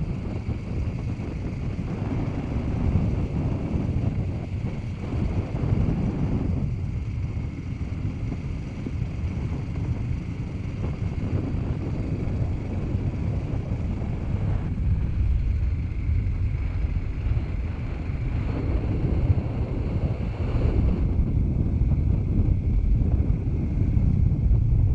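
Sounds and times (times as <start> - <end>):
motorcycle engine running: 0.0 - 24.9
wind buffeting microphone: 0.0 - 24.9.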